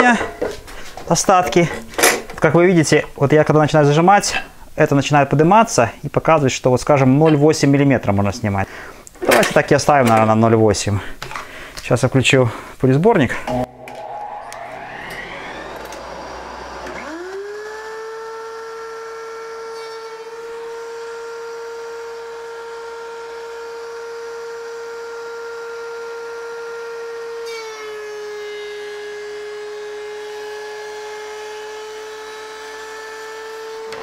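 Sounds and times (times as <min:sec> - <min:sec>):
thickness planer whining: 0:13.5 - 0:34.0
dust collector running: 0:13.6 - 0:19.7.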